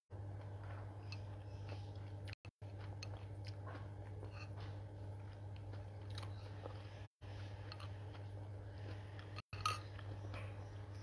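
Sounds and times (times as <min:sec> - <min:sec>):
steady low hum: 0:00.1 - 0:11.0
person chewing noodles: 0:00.3 - 0:11.0.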